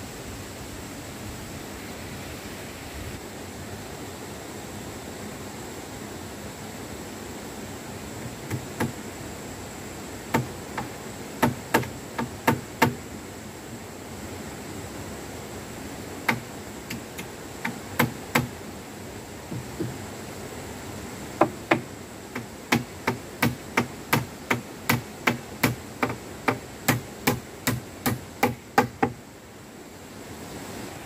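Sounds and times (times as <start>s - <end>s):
hammer blows on wood: 10.3s - 13.0s, 16.3s - 18.6s, 19.5s - 20.0s, 21.4s - 29.2s.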